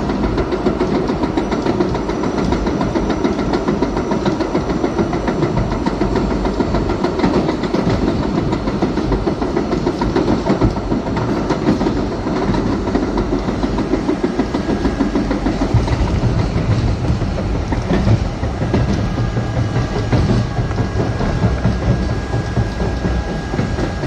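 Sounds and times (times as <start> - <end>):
subway train wheels rumbling: 0.0 - 24.0.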